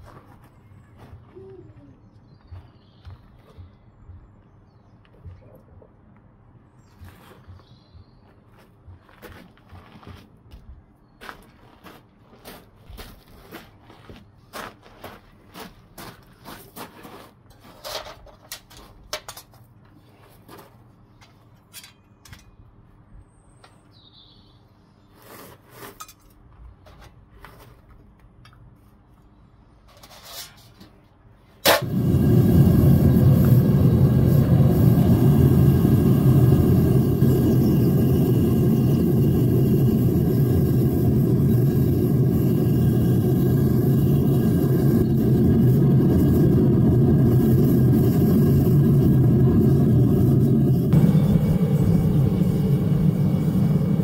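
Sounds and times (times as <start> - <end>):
propane burner roaring: 31.5 - 54.0
burner igniting click: 31.6 - 38.4.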